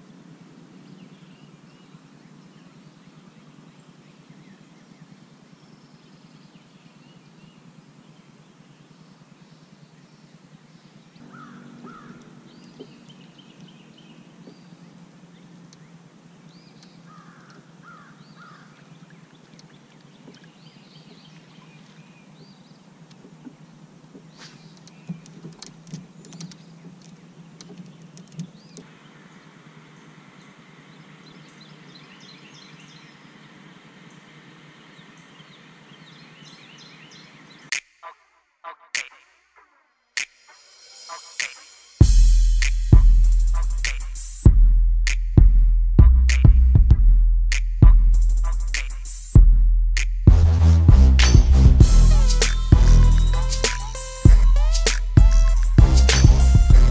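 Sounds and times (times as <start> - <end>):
birds calling and chirping: 0.0 - 37.8, 51.8 - 56.9
steady low hum: 42.0 - 56.9.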